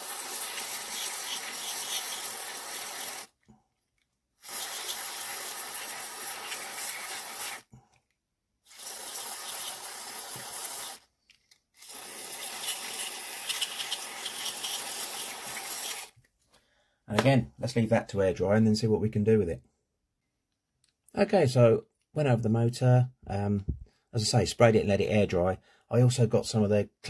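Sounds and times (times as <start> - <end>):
aerosol spray hissing: 0.0 - 3.4, 4.4 - 7.7, 8.7 - 11.0, 11.8 - 16.1.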